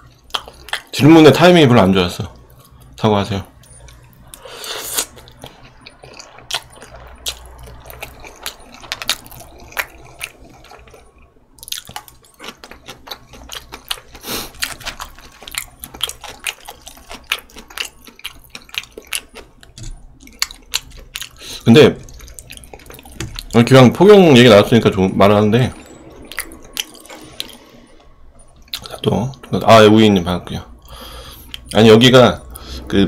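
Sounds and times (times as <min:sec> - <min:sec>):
wet chewing with mouth clicks: 0:00.0 - 0:01.0, 0:03.6 - 0:23.8, 0:25.8 - 0:29.1.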